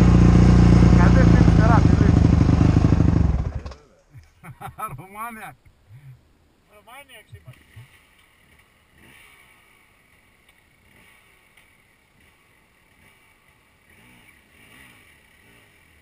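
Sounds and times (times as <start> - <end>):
motorcycle engine revving: 0.0 - 3.8, 7.5 - 16.0.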